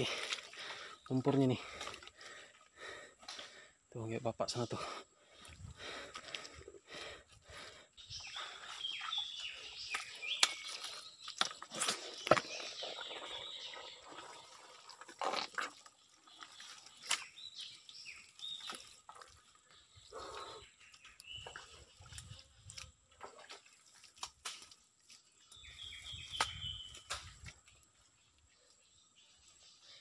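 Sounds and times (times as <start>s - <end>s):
wet clicks and drips: 21.0s - 24.9s.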